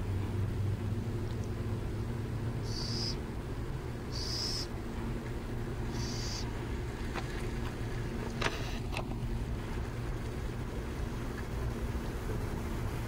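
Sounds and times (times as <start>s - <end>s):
steady low rumble: 0.0s - 13.0s
owls giving raspy hissing calls: 2.6s - 3.2s, 4.1s - 4.7s, 5.9s - 6.5s.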